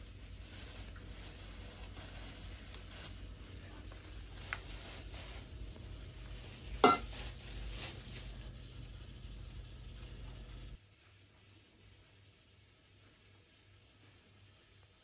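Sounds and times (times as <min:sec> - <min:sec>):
cutlery clinking against dish: 0:06.8 - 0:07.1.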